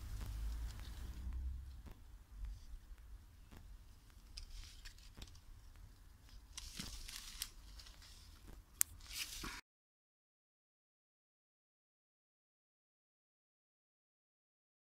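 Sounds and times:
leaves rustling: 0.0s - 1.9s, 4.1s - 9.6s
low rumble: 0.0s - 3.1s.

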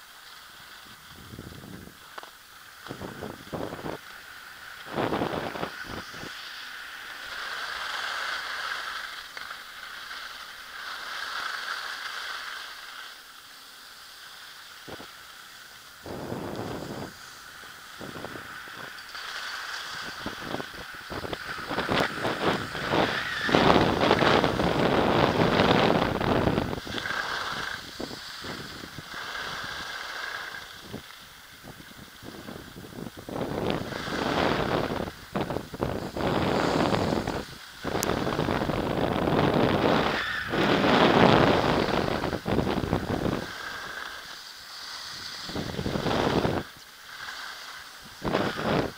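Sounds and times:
skis scraping over hard snow: 0.0s - 48.9s
wind buffeting microphone: 0.9s - 2.0s, 2.8s - 4.0s, 4.8s - 6.4s, 16.0s - 19.0s, 19.6s - 46.8s, 48.0s - 48.9s.

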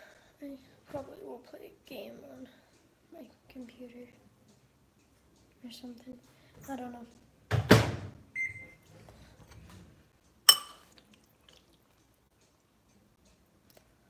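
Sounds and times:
metal spoon clinking on ceramic bowl: 10.5s - 10.9s.

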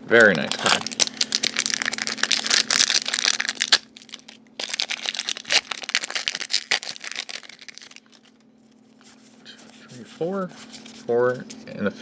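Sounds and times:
foil wrapper crinkling: 0.2s - 8.4s.

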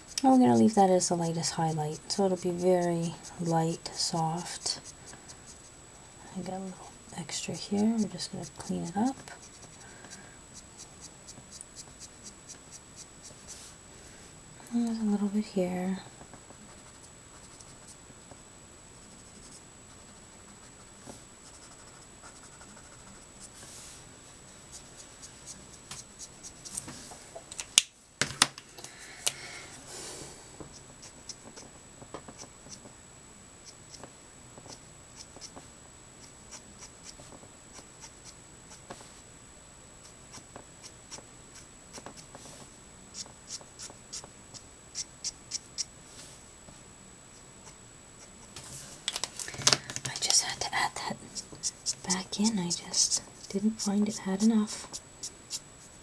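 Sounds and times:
marker rubbing on card: 0.0s - 5.7s, 7.2s - 9.8s, 10.6s - 13.7s, 16.6s - 18.0s, 19.0s - 23.9s, 32.3s - 32.8s, 33.6s - 35.6s, 36.2s - 39.0s, 40.0s - 45.9s, 51.3s - 56.0s.

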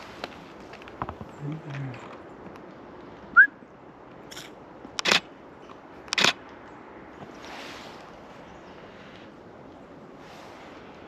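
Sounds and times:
camera shutter clicks: 4.3s - 5.3s, 6.1s - 6.4s.

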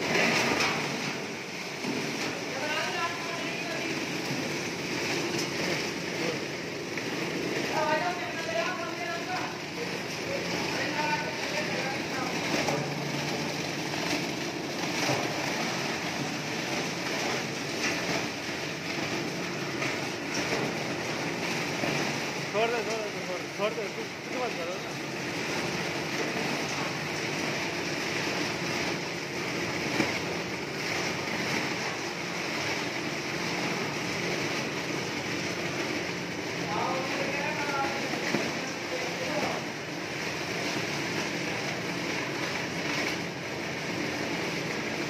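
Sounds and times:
machine churning packets: 0.0s - 45.0s.

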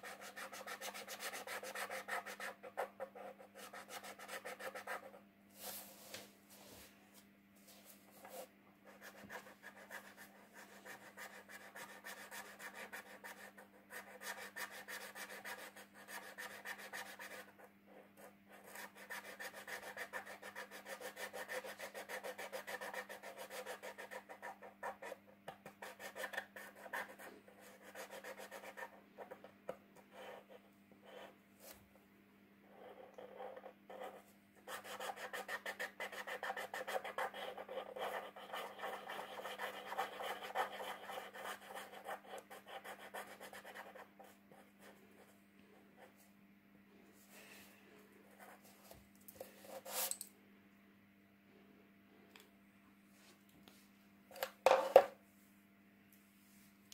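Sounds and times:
marker scratching on paper: 0.0s - 6.1s, 8.2s - 17.6s, 18.2s - 29.4s, 32.7s - 44.9s.

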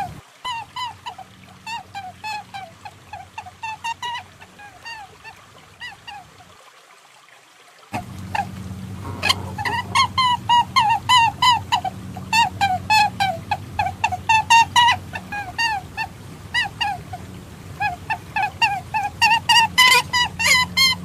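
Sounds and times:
steady low hum: 0.0s - 0.2s, 8.0s - 21.0s
squeaky bird-like calls: 8.3s - 15.9s, 17.8s - 21.0s.

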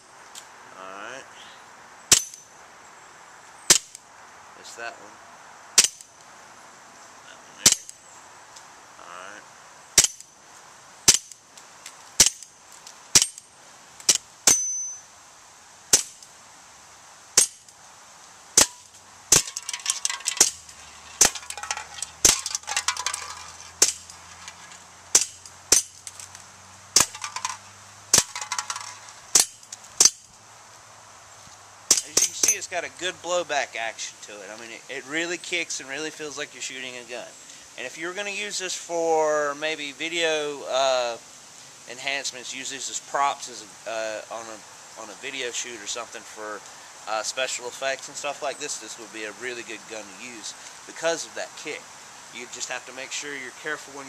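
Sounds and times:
bb pistol shots popping: 27.0s - 27.3s.

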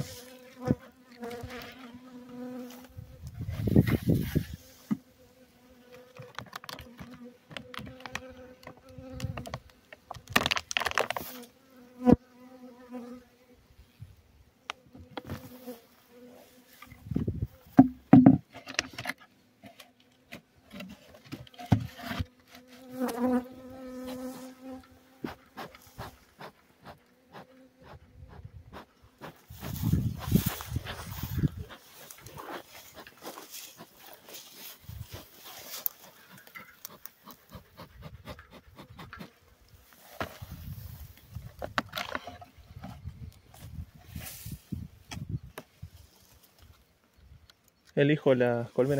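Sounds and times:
clicking and rustling on dry grass: 0.0s - 5.1s, 5.9s - 11.6s, 14.7s - 17.8s, 18.4s - 23.4s, 29.2s - 48.0s
bees buzzing: 0.0s - 9.8s, 22.2s - 37.8s.

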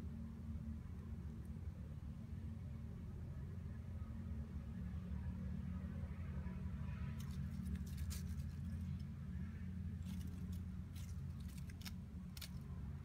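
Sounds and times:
steady low hum: 0.0s - 13.0s
kitten chewing crunchy insect: 7.2s - 9.2s, 10.0s - 13.0s.

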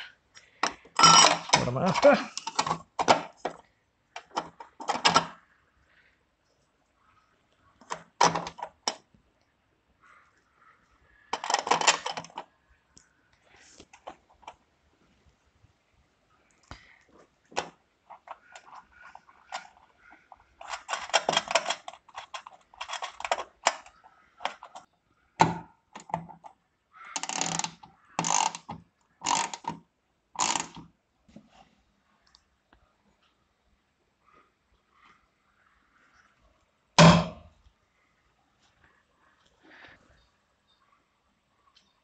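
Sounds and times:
bolts and nuts clinking: 0.6s - 5.4s, 11.3s - 12.5s, 17.5s - 26.6s, 27.2s - 29.8s, 30.4s - 30.9s.

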